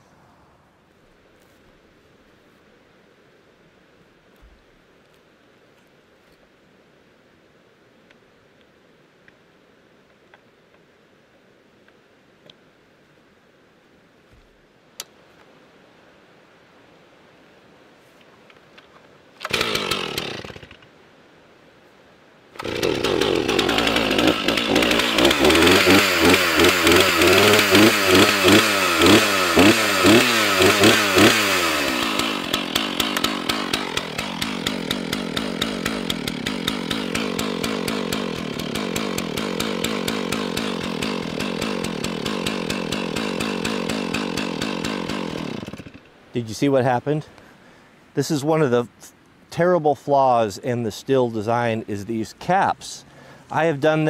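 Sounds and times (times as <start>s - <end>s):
chainsaw engine revving and idling: 19.4s - 20.8s, 22.6s - 46.1s.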